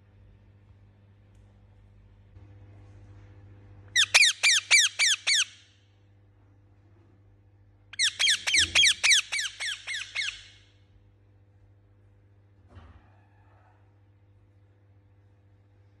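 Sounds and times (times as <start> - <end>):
parakeet harsh calls: 4.0 - 5.7, 8.0 - 10.6.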